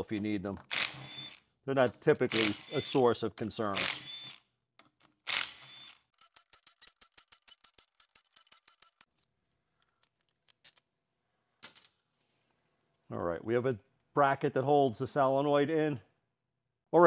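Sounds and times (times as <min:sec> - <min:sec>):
cordless ratchet motor: 0:02.3 - 0:02.9, 0:05.3 - 0:09.1
ratchet clicks: 0:05.3 - 0:09.1.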